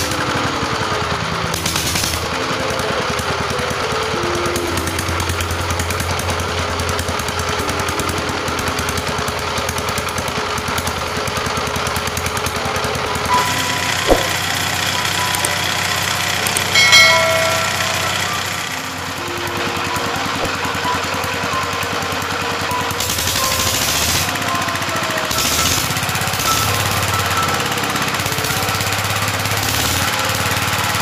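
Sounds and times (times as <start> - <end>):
diesel engine running with even knock: 0.0 - 31.0
bright ringing chime: 13.1 - 21.1
short sharp click: 13.3 - 14.5.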